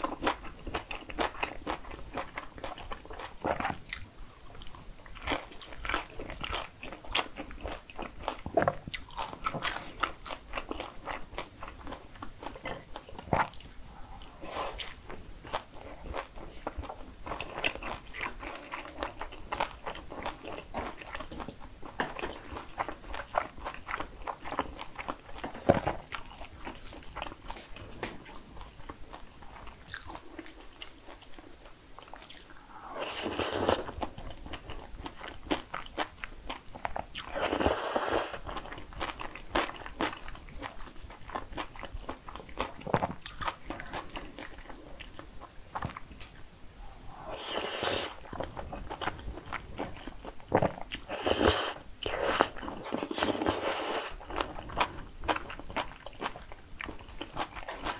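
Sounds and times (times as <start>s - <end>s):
noodle slurps: 51.1s - 54.2s.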